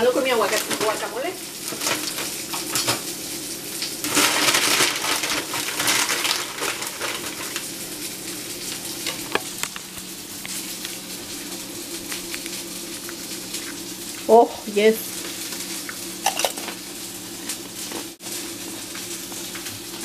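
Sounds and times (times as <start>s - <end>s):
plastic bag crinkling: 0.2s - 2.8s, 4.0s - 7.8s.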